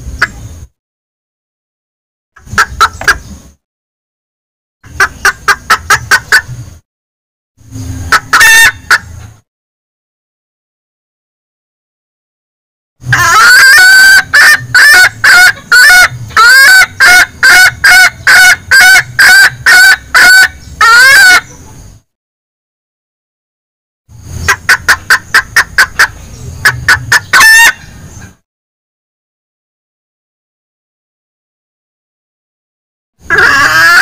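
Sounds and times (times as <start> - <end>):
hen clucking calls: 2.4 - 3.4, 4.8 - 6.6, 8.0 - 9.4, 13.0 - 21.8, 24.4 - 28.4, 33.2 - 34.0.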